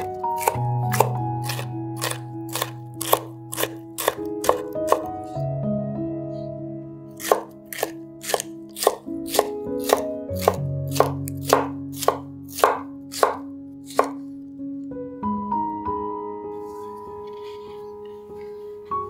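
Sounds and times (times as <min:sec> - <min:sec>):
knife chopping on wooden board: 0:00.0 - 0:05.1, 0:07.2 - 0:14.2.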